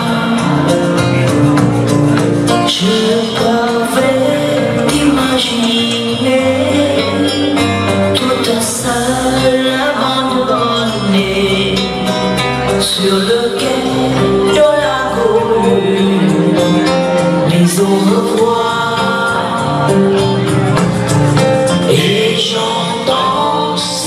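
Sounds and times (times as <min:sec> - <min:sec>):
woman singing ballad: 0:02.7 - 0:12.0, 0:12.8 - 0:16.8.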